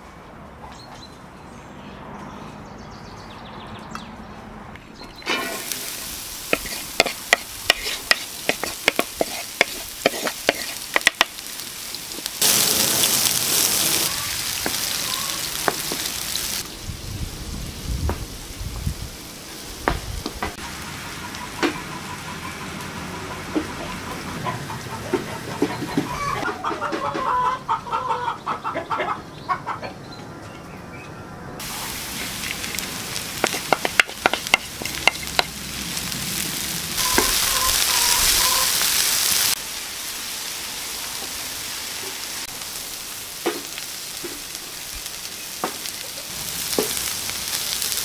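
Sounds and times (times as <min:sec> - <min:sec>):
onion sizzling in hot oil: 0:05.1 - 0:25.2, 0:31.6 - 0:48.0
wooden spoon stirring: 0:05.2 - 0:11.3.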